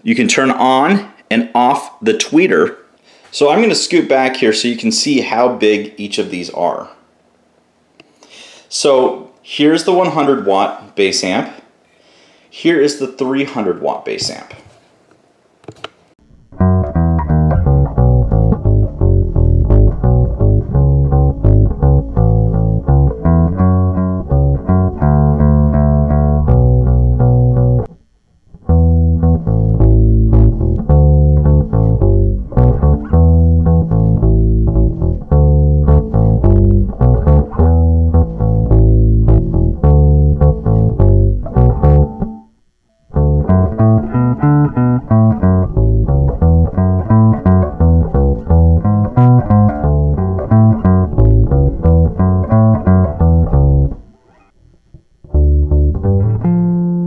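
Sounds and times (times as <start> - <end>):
plucked electric bass guitar: 16.2 - 54.1, 54.9 - 57.0.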